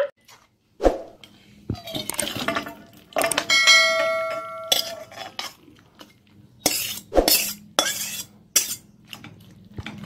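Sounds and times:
metal spatula scraping cookware: 1.8s - 5.6s, 6.6s - 8.9s
ringing metal tone: 3.5s - 4.9s.

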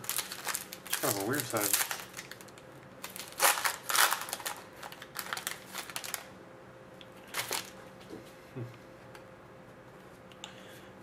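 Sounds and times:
foil wrapper crinkling: 0.0s - 6.3s, 7.2s - 7.8s.

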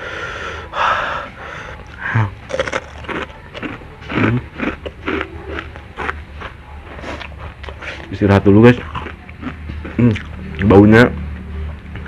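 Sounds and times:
breathy rush of air: 0.0s - 2.1s
person chewing noodles: 1.0s - 8.1s, 8.8s - 10.7s.

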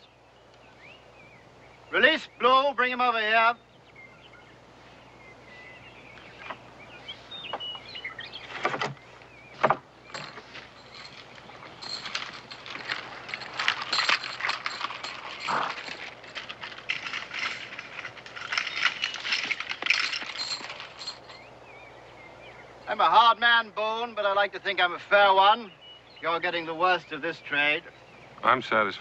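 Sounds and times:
sharp wooden knocks: 9.6s - 10.5s
footsteps: 9.6s - 21.4s
iron chains jangling: 10.1s - 21.5s.

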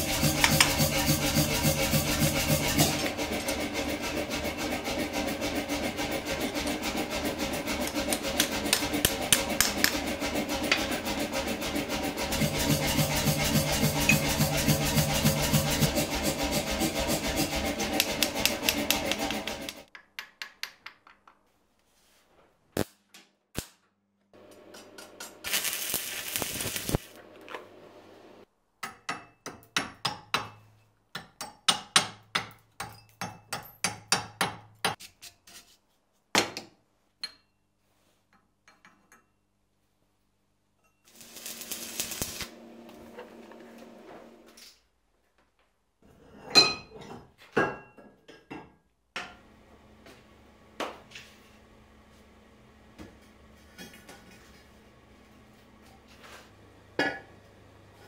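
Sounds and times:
welding crackle: 25.4s - 27.2s, 41.1s - 42.6s.

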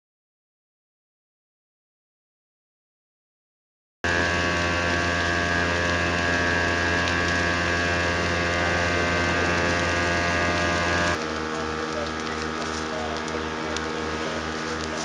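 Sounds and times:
fire pump engine running: 4.0s - 15.0s.

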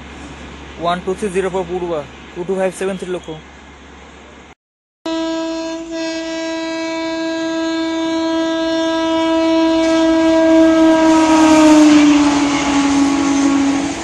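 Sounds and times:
passing train rushing: 0.0s - 4.4s, 5.2s - 14.0s
locomotive horn blast: 5.1s - 14.0s.

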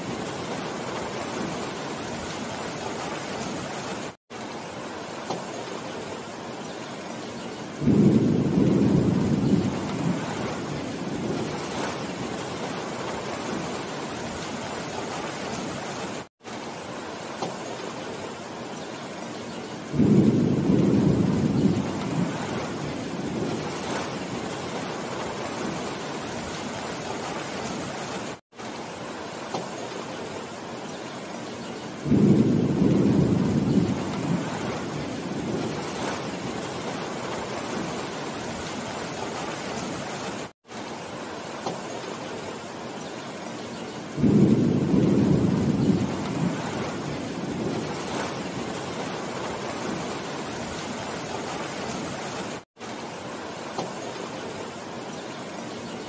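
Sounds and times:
heavy rain on foliage: 0.0s - 56.0s
thunder rumble: 7.8s - 13.8s, 19.9s - 26.0s, 32.0s - 38.2s, 44.2s - 52.0s.

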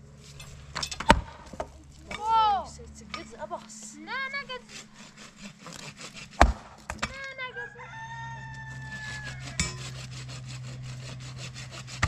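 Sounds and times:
rooster crowing: 7.4s - 9.9s.

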